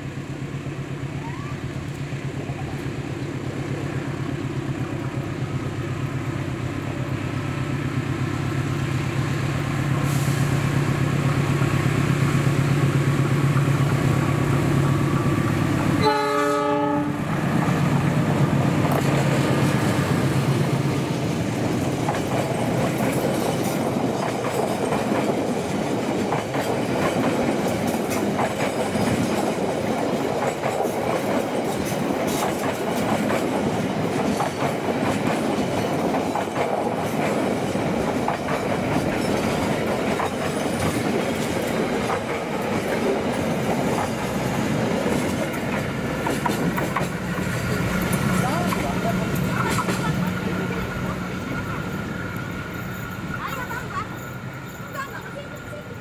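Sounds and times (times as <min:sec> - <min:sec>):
locomotive engine hum: 0:00.0 - 0:56.0
train wheels clacking on rails: 0:08.3 - 0:56.0
train horn: 0:16.0 - 0:17.3.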